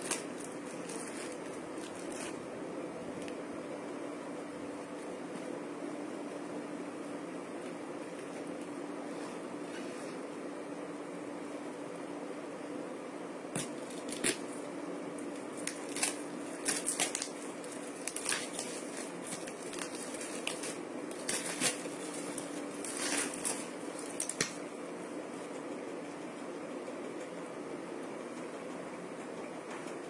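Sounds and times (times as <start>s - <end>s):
plastic packaging crinkling: 0.0s - 2.5s, 13.6s - 24.6s
steady low hum: 0.0s - 30.0s.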